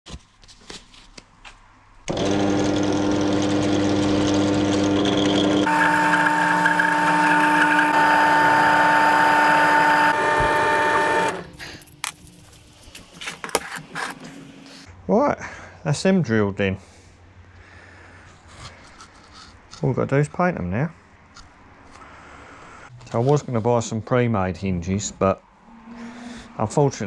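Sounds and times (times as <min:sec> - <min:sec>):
pillar drill cutting steel: 0:02.1 - 0:11.6.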